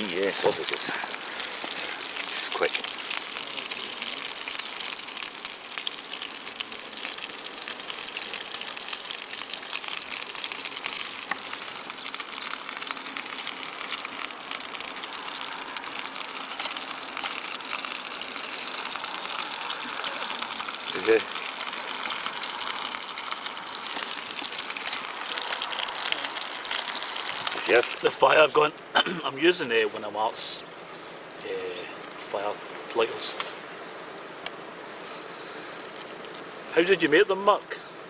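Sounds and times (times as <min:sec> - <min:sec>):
gas burner hiss: 0:00.0 - 0:28.5
sausages sizzling in pan: 0:00.0 - 0:29.8, 0:35.1 - 0:37.7.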